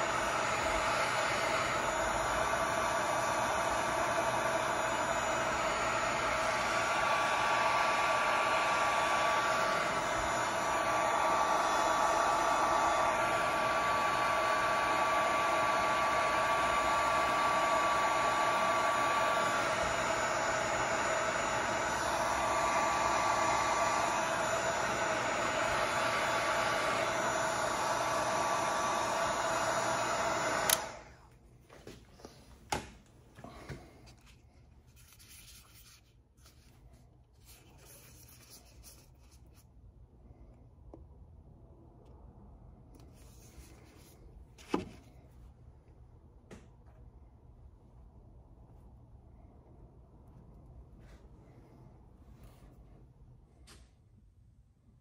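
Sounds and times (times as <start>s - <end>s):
heat gun blowing air: 0.0s - 31.2s
heat gun switch click: 30.6s - 31.0s.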